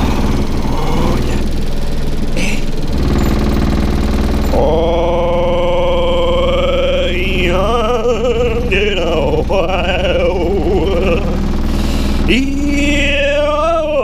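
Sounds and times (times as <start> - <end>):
vibration plate motor humming: 0.0 - 14.0
man singing warbling note: 4.5 - 14.0.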